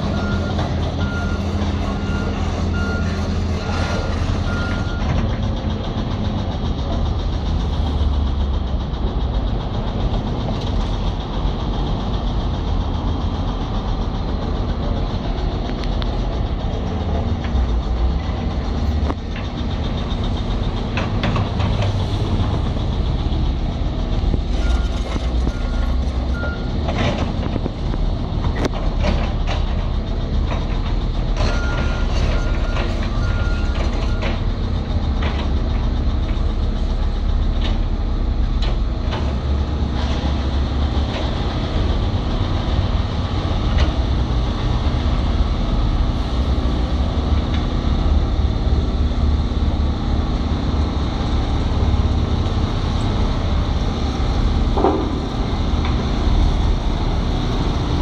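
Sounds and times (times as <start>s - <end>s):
excavator diesel engine running: 0.0s - 58.0s
sharp knocks: 54.7s - 55.6s.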